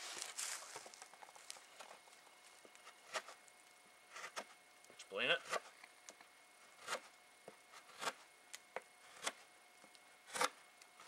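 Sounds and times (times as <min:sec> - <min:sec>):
knife scraping wood: 0:02.7 - 0:03.4, 0:04.1 - 0:04.6, 0:05.3 - 0:05.8, 0:06.6 - 0:08.3, 0:09.0 - 0:09.5, 0:10.2 - 0:11.0.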